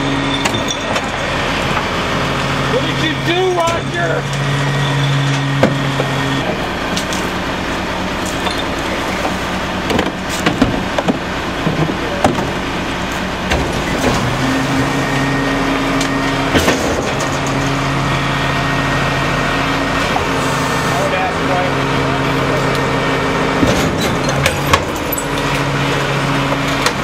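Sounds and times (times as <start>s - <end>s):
garbage truck running: 0.0s - 27.0s
hydraulic packer hum: 0.0s - 27.0s.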